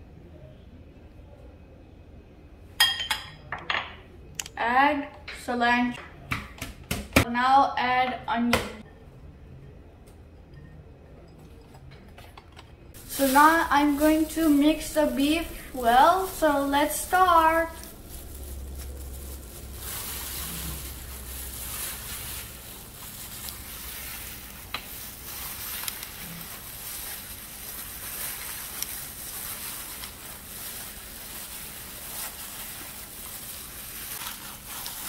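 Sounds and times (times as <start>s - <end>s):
gloved hands kneading ground meat: 13.0s - 35.0s.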